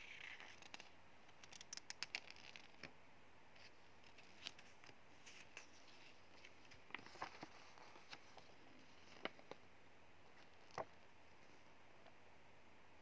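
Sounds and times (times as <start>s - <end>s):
paper booklet rustling: 0.0s - 2.9s, 3.6s - 9.6s, 10.3s - 11.6s.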